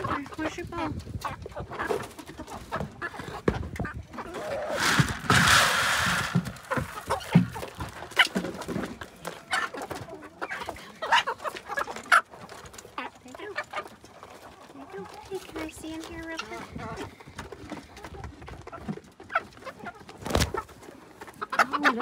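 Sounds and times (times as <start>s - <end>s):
hens clucking: 0.0s - 22.0s
feed pellets poured into dish: 4.6s - 6.8s.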